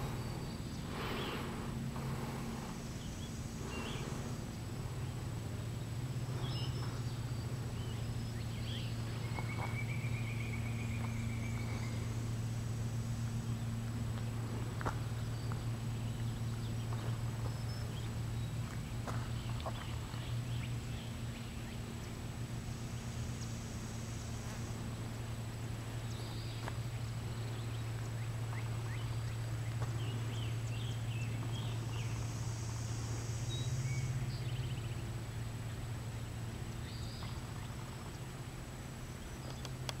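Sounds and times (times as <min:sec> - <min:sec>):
steady low hum: 0:00.0 - 0:40.0
bird chirps: 0:06.3 - 0:12.3.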